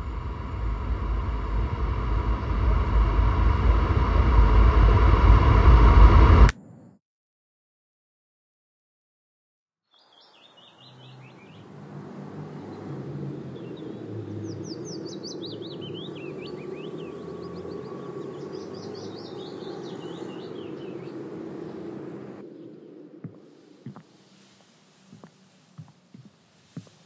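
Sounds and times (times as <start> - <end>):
low background rumble: 0.0 - 6.5
small birds chirping: 9.9 - 11.7, 12.6 - 27.0.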